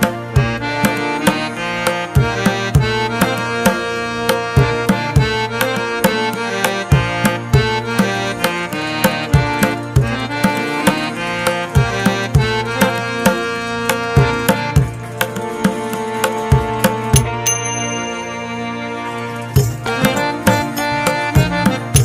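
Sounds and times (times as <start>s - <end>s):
hand drum rhythm: 0.0s - 18.2s, 19.4s - 22.0s
sustained held notes: 16.9s - 22.0s.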